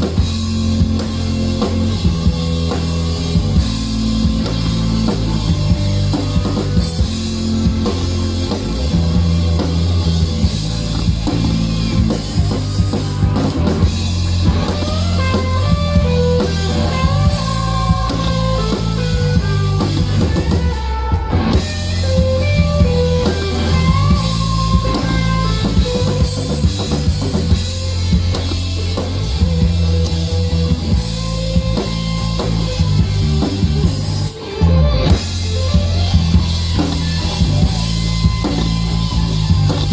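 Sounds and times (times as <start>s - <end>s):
bass guitar: 0.0s - 39.9s
drum kit: 0.0s - 39.9s
electric guitar: 0.0s - 39.9s
lead melody line: 3.3s - 39.7s.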